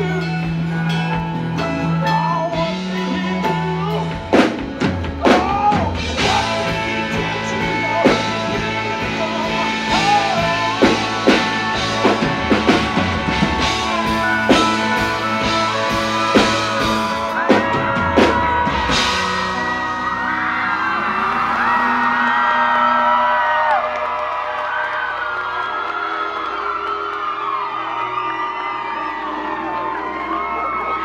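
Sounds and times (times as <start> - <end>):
man singing lead: 0.0 - 22.3
live country band: 0.0 - 23.9.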